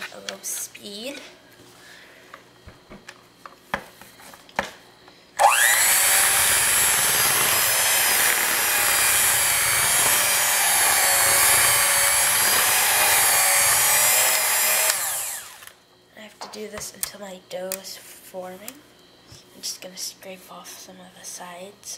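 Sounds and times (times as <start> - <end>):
electric hand mixer running: 5.4 - 15.8.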